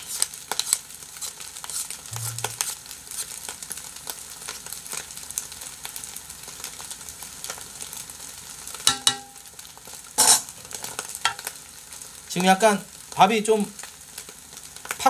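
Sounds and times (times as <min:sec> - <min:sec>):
utensils scraping and tapping wok: 0:00.0 - 0:03.6, 0:08.8 - 0:09.5, 0:10.2 - 0:11.5
popping crackles: 0:00.0 - 0:15.0
rice sizzling in oil: 0:00.0 - 0:15.0.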